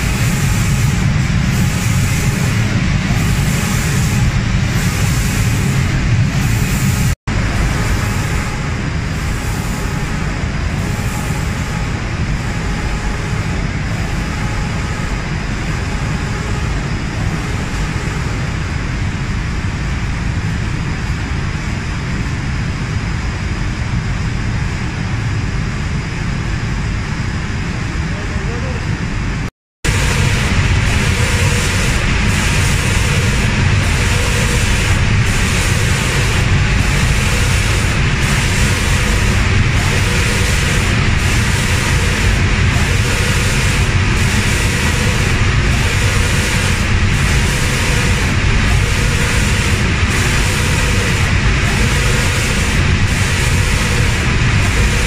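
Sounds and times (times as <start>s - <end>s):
spray-painting machine humming: 0.0s - 23.9s, 29.8s - 55.0s
heavy low rumble: 0.0s - 55.0s
hiss: 29.9s - 55.0s.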